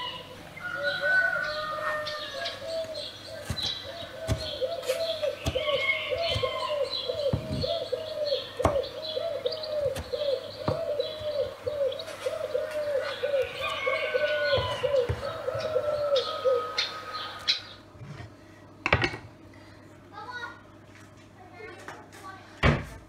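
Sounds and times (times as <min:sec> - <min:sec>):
birds chirping: 0:00.0 - 0:18.8
knife knocking on chopping board: 0:04.3 - 0:04.5, 0:07.3 - 0:07.8, 0:14.5 - 0:15.7.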